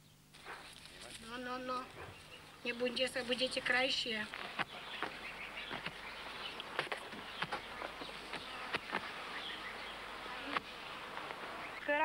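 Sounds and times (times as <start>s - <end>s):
faint bird chirps: 2.0s - 12.0s.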